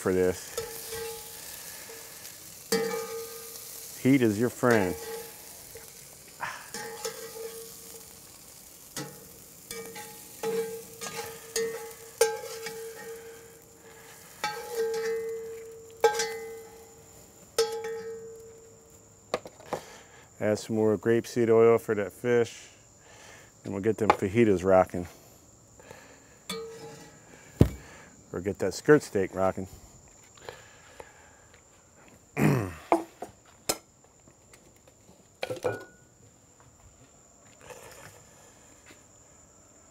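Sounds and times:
vegetables sizzling: 0.0 - 20.0
pan ringing: 2.7 - 3.7, 9.0 - 13.6, 14.4 - 17.0, 17.6 - 18.6, 26.5 - 27.0.

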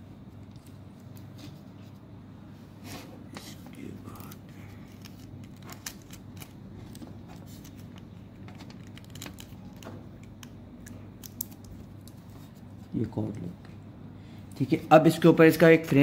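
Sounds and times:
clicks and rustles of handling cable: 0.3 - 2.1, 3.3 - 13.8.

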